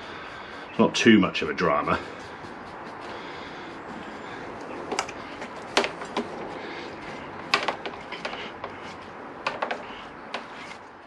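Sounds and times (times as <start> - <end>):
sharp clicks and knocks: 4.6 - 10.8.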